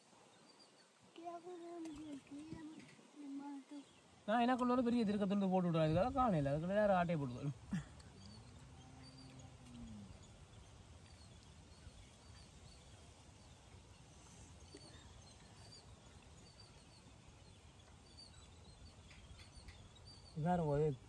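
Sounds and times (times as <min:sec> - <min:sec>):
high bird chirps: 0:08.1 - 0:21.0.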